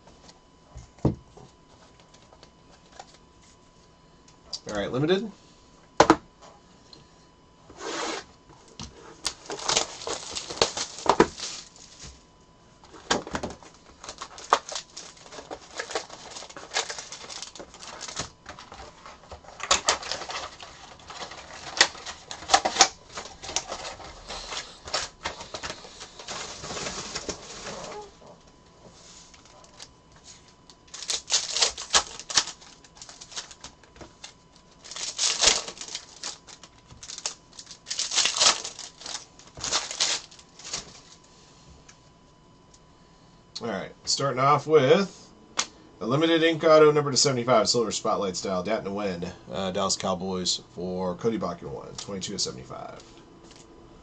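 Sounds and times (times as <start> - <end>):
foil wrappers crinkling: 9.1 - 12.3, 12.9 - 41.3
foil pack tearing open: 9.2 - 11.7, 13.6 - 28.1, 30.9 - 41.0.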